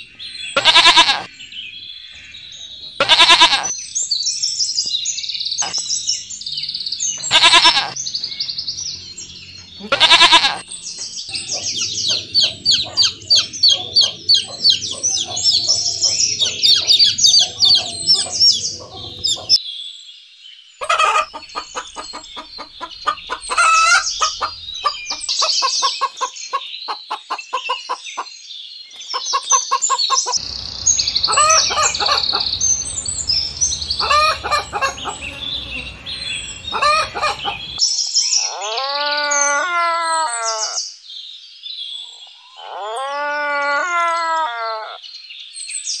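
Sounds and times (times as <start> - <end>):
small birds chirping: 0.0 - 19.6, 20.5 - 39.6
chickens clucking: 0.6 - 1.3, 7.2 - 8.4, 9.6 - 19.6, 20.8 - 28.3, 28.9 - 37.8
rooster crowing: 11.4 - 19.6, 20.8 - 26.7, 29.2 - 37.8.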